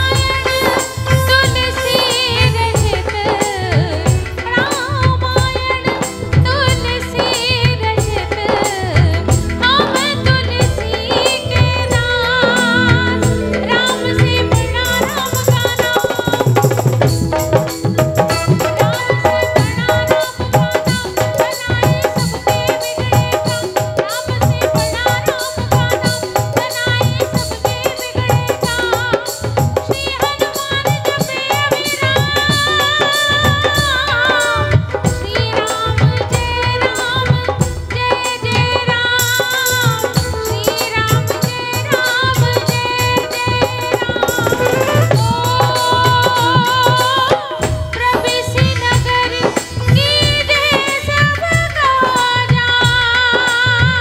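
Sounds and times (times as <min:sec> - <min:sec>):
keyboard: 0:00.0 - 0:54.0
steady drum beat: 0:00.0 - 0:54.0
woman singing: 0:00.0 - 0:54.0
melodic instrumental accompaniment: 0:08.0 - 0:20.2
saxophone: 0:43.6 - 0:48.0.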